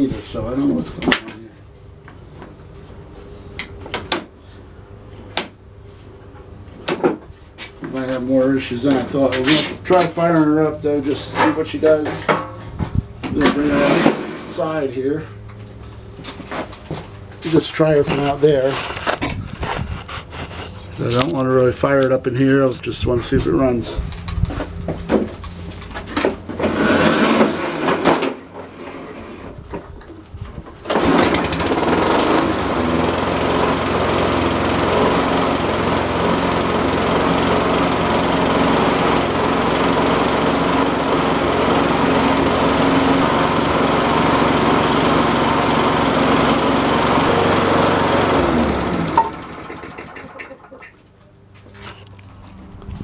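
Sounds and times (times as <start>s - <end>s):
lawn mower engine running: 11.0s - 19.7s, 23.9s - 29.6s, 30.8s - 53.0s.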